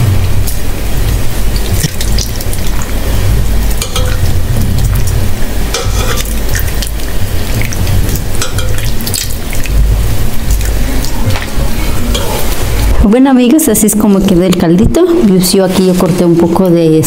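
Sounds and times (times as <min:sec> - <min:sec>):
steady low rumble: 0:00.0 - 0:16.8
liquid splashing and dripping: 0:01.4 - 0:03.0, 0:03.7 - 0:12.2.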